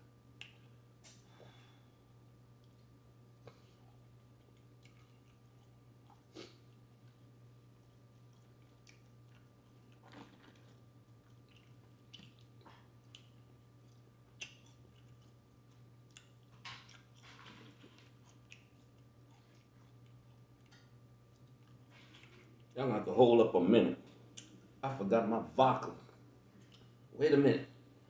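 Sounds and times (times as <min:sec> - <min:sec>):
low steady hum: 0:00.0 - 0:28.0
person chewing: 0:02.6 - 0:22.8.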